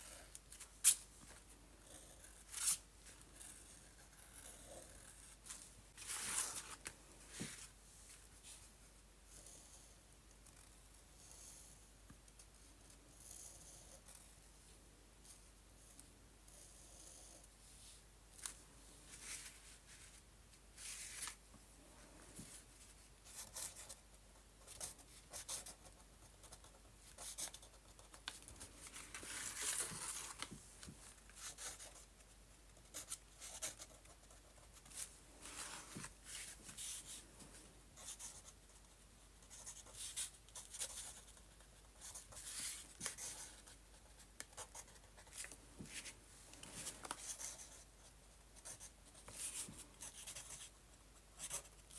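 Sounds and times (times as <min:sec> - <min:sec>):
pen scratching on paper: 0:24.6 - 0:28.2, 0:38.0 - 0:38.9, 0:39.5 - 0:45.3, 0:51.4 - 0:51.8
paper rustling: 0:28.2 - 0:31.2.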